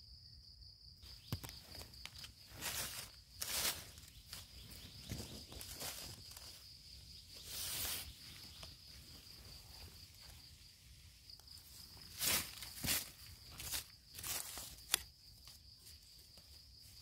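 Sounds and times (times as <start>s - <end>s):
high insect trill: 0.0s - 17.0s
dry leaves rustling: 1.7s - 15.0s.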